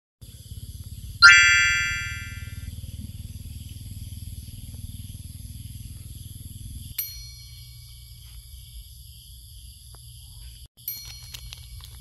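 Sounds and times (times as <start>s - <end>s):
bright ringing ding: 1.2s - 2.6s.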